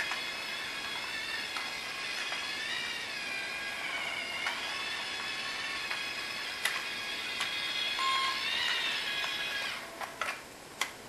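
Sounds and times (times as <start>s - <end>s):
toy train motor whining: 0.0s - 10.3s.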